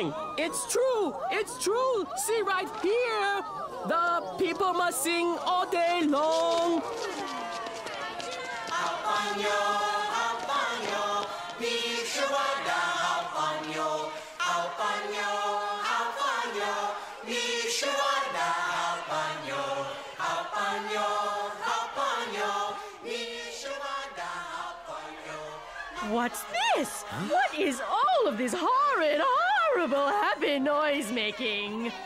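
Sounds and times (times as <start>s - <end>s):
group of voices singing: 0.0s - 32.0s.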